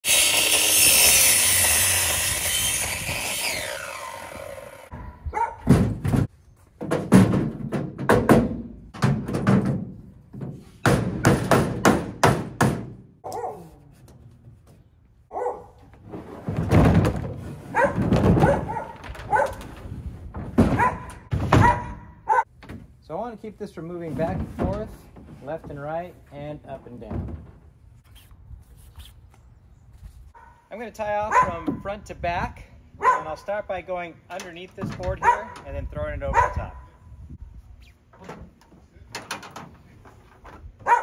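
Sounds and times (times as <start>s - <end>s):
miter saw cutting wood: 0.0s - 5.0s
mallet knocking wooden boards: 10.8s - 13.0s.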